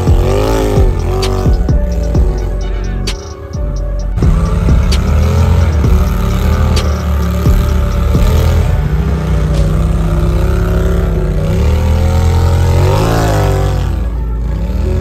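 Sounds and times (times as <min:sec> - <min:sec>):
engine revving under load: 0:00.0 - 0:15.0.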